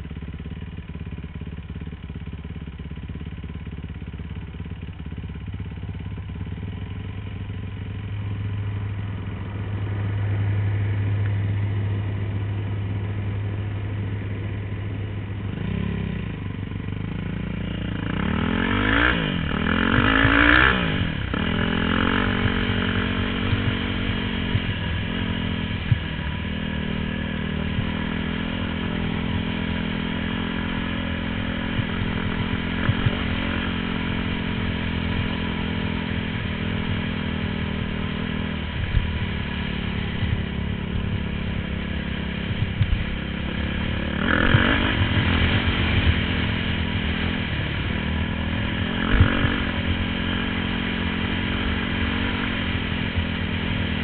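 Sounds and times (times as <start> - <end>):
dirt bike engine revving: 17.1 - 54.0.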